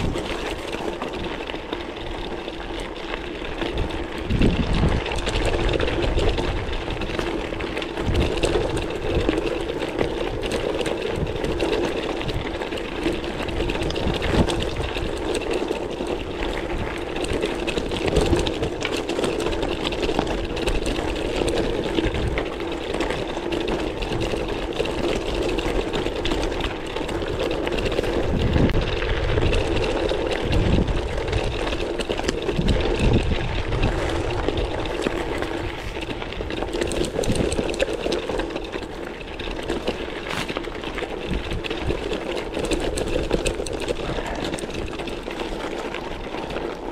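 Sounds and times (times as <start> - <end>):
bike frame rattling: 0.0 - 46.9
tyres crunching on gravel: 0.0 - 46.9.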